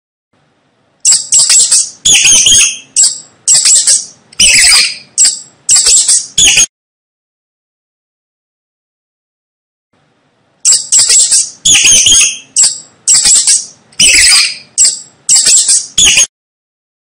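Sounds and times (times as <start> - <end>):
mice squeaking: 1.0 - 6.7, 10.6 - 16.3.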